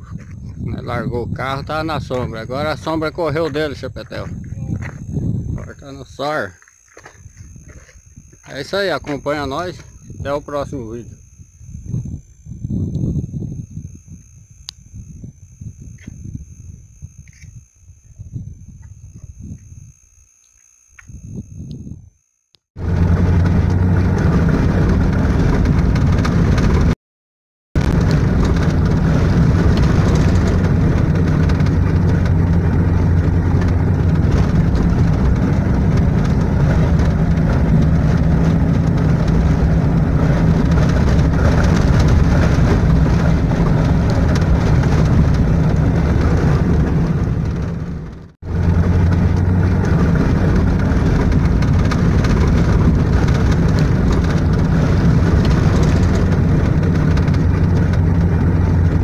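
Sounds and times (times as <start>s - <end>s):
road rumble: 0.0s - 22.1s, 22.8s - 27.0s, 27.8s - 59.0s
car engine humming: 22.8s - 26.7s, 27.8s - 59.0s.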